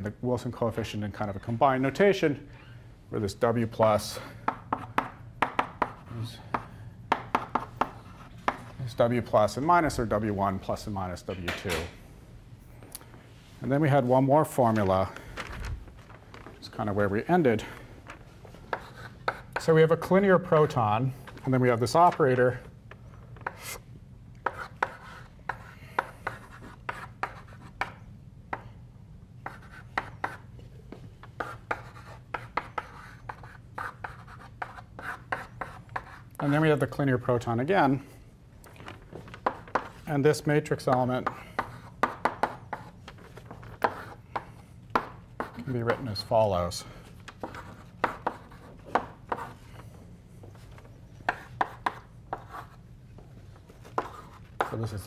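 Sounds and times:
chalk tapping and scraping on blackboard: 4.4 - 8.8, 18.5 - 20.0, 22.9 - 23.8, 24.4 - 28.7, 29.4 - 36.8, 39.2 - 46.3, 47.2 - 55.0.

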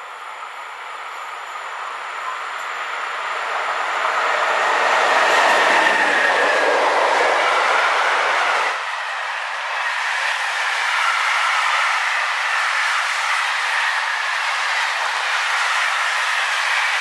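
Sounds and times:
freight train rolling past: 0.0 - 17.0.

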